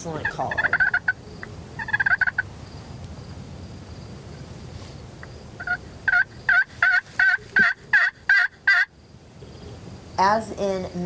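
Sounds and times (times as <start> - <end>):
turkey call yelps: 0.2 - 2.5, 5.6 - 8.9.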